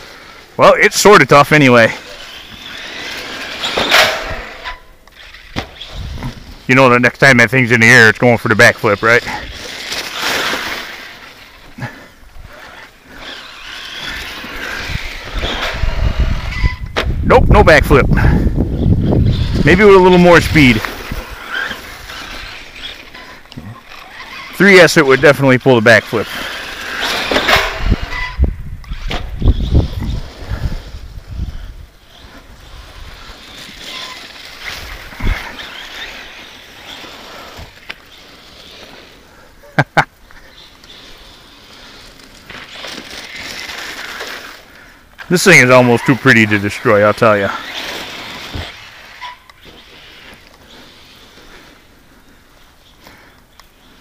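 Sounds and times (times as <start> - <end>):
electric motor whining: 2.0 - 6.6, 8.9 - 17.0, 18.4 - 39.3.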